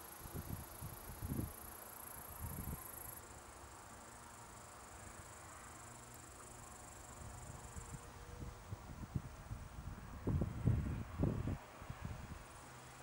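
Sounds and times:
insects chirring: 0.0 - 8.0
wind rumble on microphone: 0.2 - 1.6, 2.3 - 2.8, 7.4 - 12.5.

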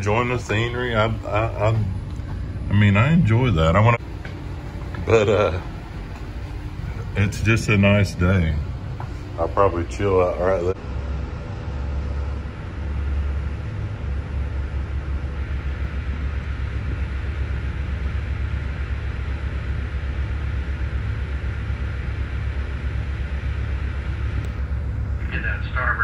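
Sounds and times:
diesel engine throbbing: 0.0 - 26.0.

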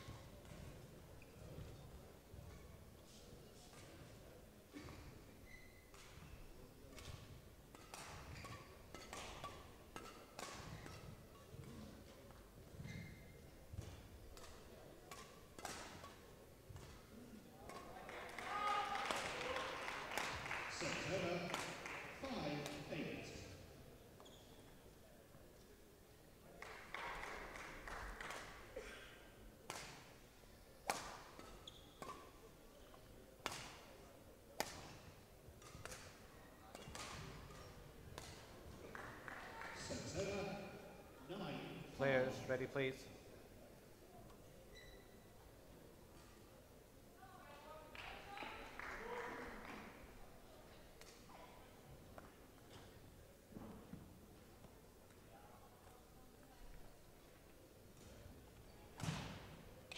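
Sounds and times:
rackets hitting shuttlecock: 6.9 - 12.2, 13.7 - 18.5, 30.8 - 34.0, 34.6 - 38.5, 59.0 - 59.9.

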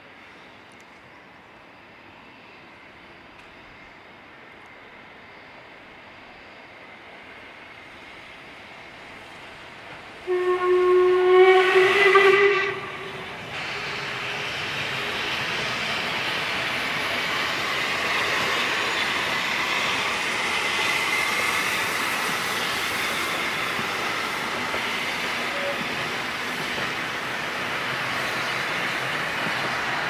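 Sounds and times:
steam hissing: 6.4 - 30.0
steam locomotive whistle: 10.2 - 26.2.

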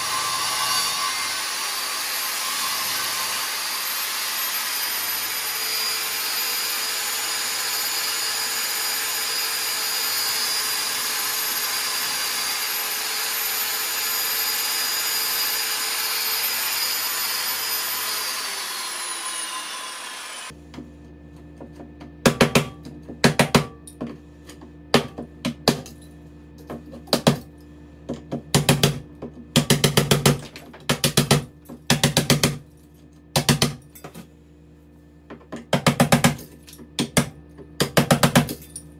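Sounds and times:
power tool motor whining: 0.0 - 20.5.

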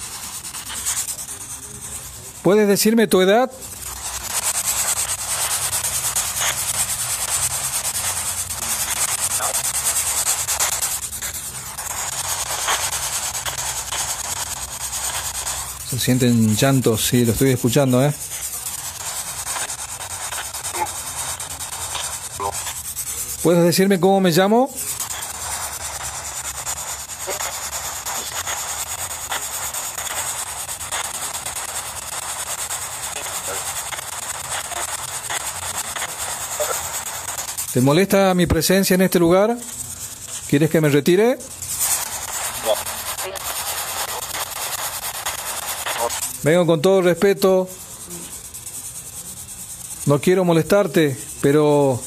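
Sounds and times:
static hiss: 0.0 - 52.0
faint crackles: 24.7 - 37.9, 41.4 - 46.3.

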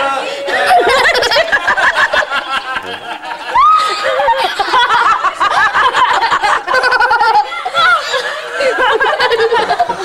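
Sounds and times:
people laughing and calling out: 0.0 - 10.0
loud high held cry: 3.5 - 4.1.

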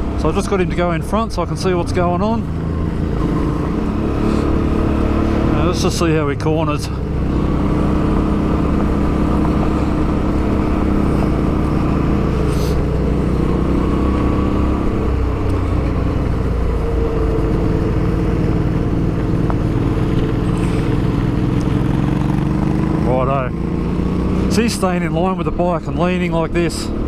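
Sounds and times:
motorcycle engine running: 0.0 - 27.0.

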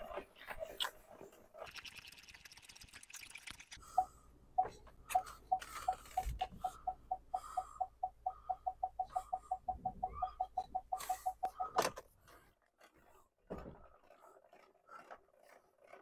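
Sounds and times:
parking sensor beeps: 3.9 - 12.0.

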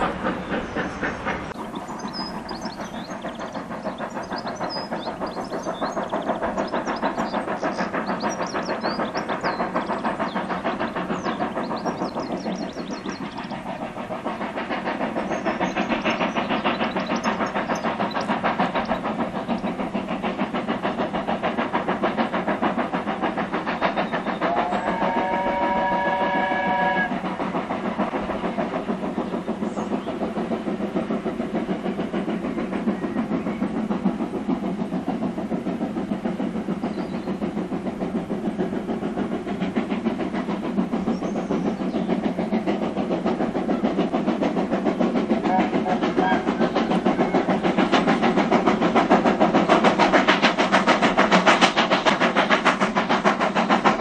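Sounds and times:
steam locomotive exhaust beating: 0.0 - 54.0
steam locomotive whistle: 24.5 - 27.2, 45.5 - 47.5.

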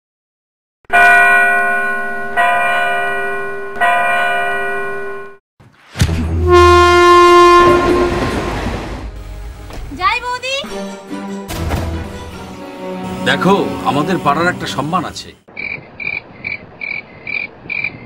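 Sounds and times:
bell chimes: 0.9 - 5.4.

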